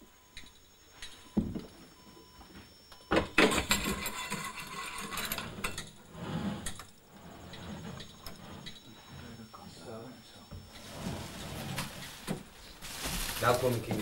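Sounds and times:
sheet metal clattering and scraping: 0:03.5 - 0:06.8.

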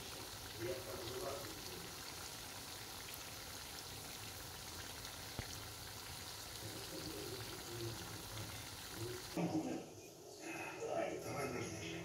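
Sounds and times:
doughnuts sizzling in oil: 0:00.0 - 0:09.4.

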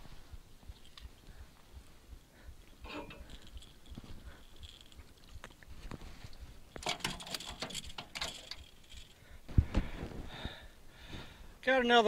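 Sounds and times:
rattling in aluminium boat: 0:06.8 - 0:09.0.

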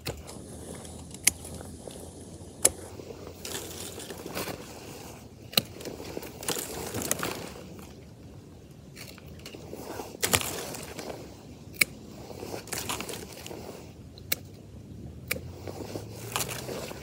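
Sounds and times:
secateurs snipping stems: 0:00.0 - 0:07.9, 0:09.0 - 0:14.6, 0:15.2 - 0:17.0
rustle of stems and leaves: 0:00.0 - 0:14.7, 0:15.3 - 0:17.0.

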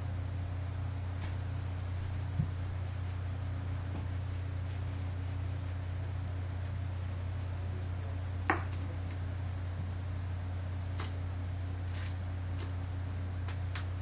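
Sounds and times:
steady low hum: 0:00.0 - 0:14.0
high crinkle: 0:10.9 - 0:12.8.

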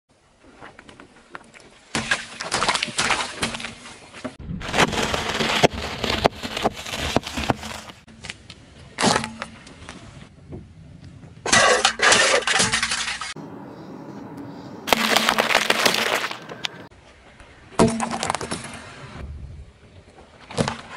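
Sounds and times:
objects crunching under tyre: 0:00.5 - 0:08.1, 0:14.9 - 0:16.9
tyre rolling on asphalt: 0:14.9 - 0:16.9.

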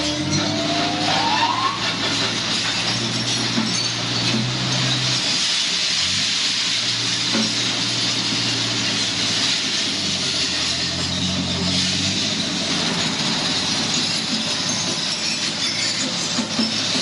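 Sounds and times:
glass crusher machinery humming: 0:00.0 - 0:17.0.

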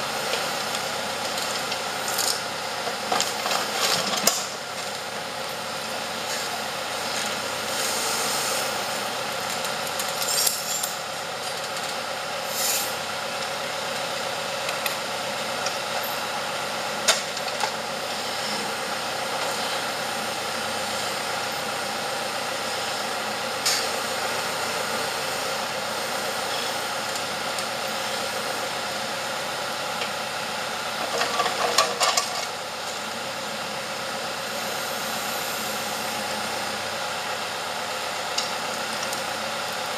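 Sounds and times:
tractor engine running: 0:00.0 - 0:07.7.

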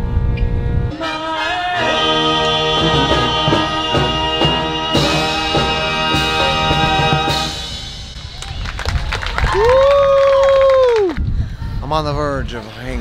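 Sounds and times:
held brass chords: 0:00.8 - 0:08.2
steady drum beat: 0:02.7 - 0:08.4.

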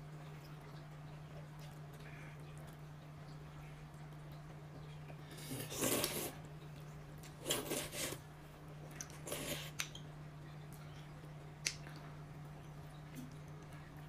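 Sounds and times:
steady low hum: 0:00.0 - 0:14.0
tableware rustling and scraping: 0:07.4 - 0:08.2.

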